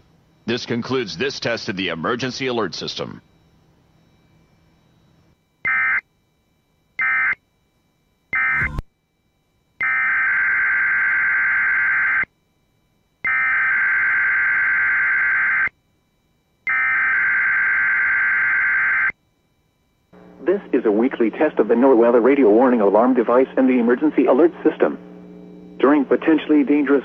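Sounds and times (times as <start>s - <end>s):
buzzy two-tone data bursts: 8.4s - 8.8s, 20.2s - 27.0s.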